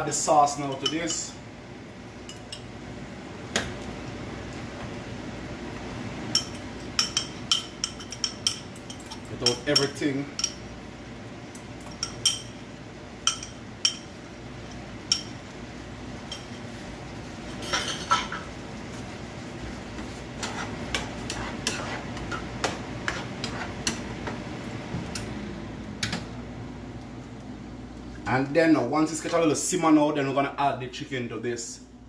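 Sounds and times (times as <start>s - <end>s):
spoon stirring sauce in pan: 18.9s - 24.5s.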